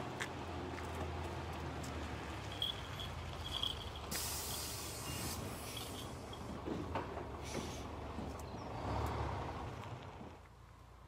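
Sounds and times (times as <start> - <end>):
bus engine running: 0.0 - 11.0
air brake hiss: 4.1 - 6.2, 7.4 - 7.9.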